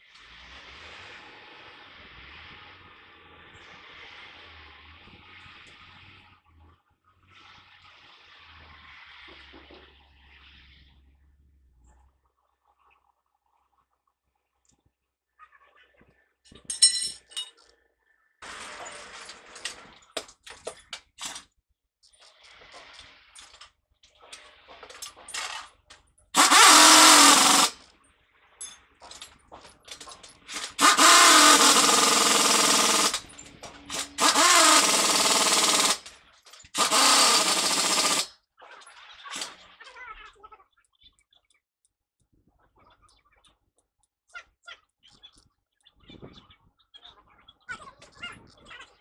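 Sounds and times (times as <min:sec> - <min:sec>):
tools knocking and clattering: 0:16.5 - 0:17.6
pneumatic impact wrench: 0:26.4 - 0:27.8, 0:30.5 - 0:38.3.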